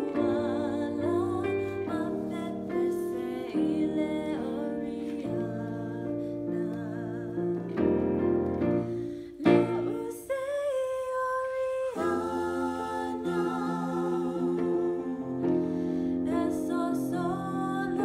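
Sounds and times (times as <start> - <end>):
woman singing a slow ballad: 0.0 - 8.0, 9.3 - 12.2, 16.2 - 18.0.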